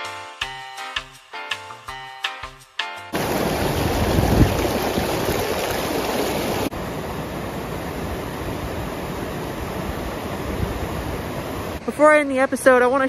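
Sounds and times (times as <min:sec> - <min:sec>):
creek water rushing over rocks: 0:03.2 - 0:11.8.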